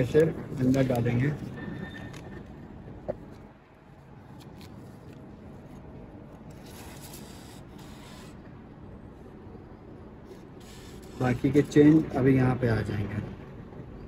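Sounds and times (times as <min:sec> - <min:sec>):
steady low hum: 0:00.0 - 0:14.0
banknote rubbing and scraping: 0:06.5 - 0:08.4.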